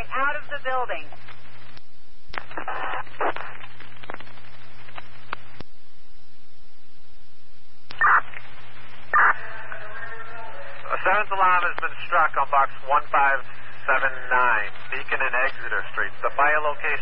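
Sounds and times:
radio static hiss: 0.0 - 5.8, 7.8 - 17.0
low hum: 0.0 - 17.0
garbled radio transmission: 2.4 - 5.6, 7.9 - 17.0.

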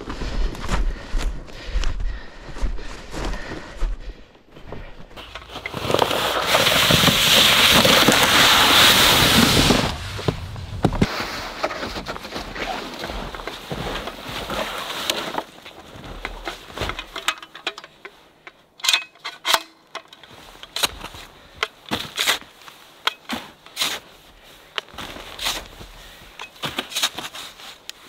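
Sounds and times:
footsteps crunching in snow: 0.0 - 17.2, 20.3 - 28.0
plastic sled scraping snow: 5.1 - 17.2, 20.3 - 28.0
loud rushing hiss: 8.2 - 11.0.

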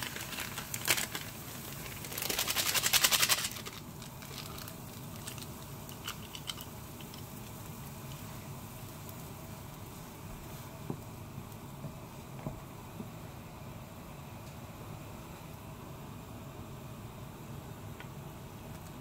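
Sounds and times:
sachet crinkling: 0.0 - 7.2
powder pouring into pot hiss: 0.0 - 19.0.

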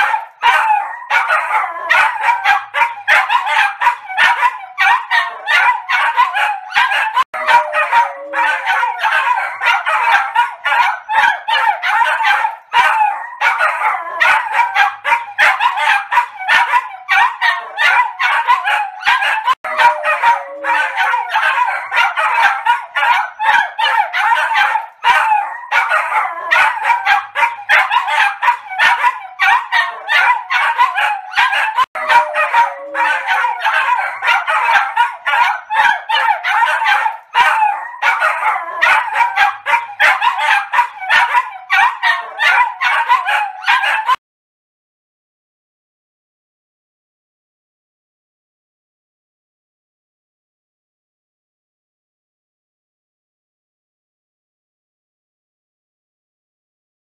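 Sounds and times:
small dogs barking and yipping: 0.0 - 44.2.

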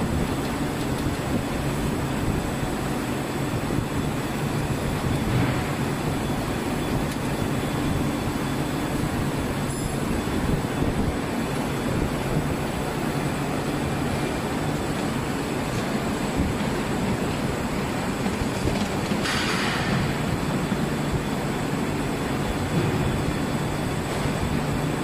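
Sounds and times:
factory machinery rumbling: 0.0 - 25.0
thin high whine: 1.3 - 16.6.

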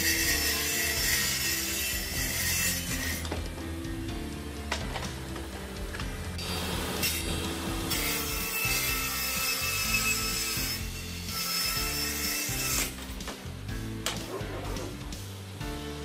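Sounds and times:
table saw cutting wood: 0.0 - 3.6, 6.4 - 13.3
background music: 0.0 - 16.0.

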